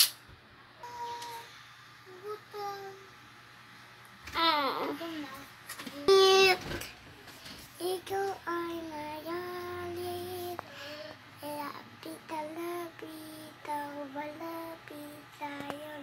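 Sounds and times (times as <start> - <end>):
child singing: 0.8 - 1.5, 2.1 - 3.1, 7.8 - 10.7, 11.4 - 16.0.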